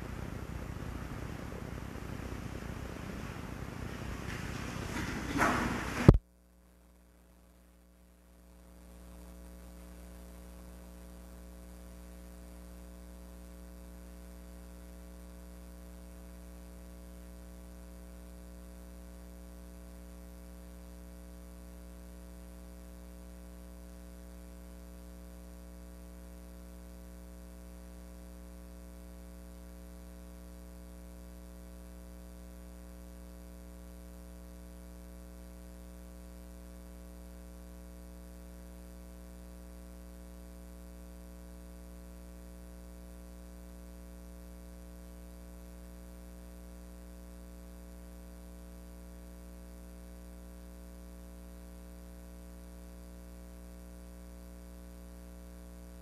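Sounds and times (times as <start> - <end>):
faint hiss: 0.0 - 6.2
electrical mains hum: 0.0 - 56.0.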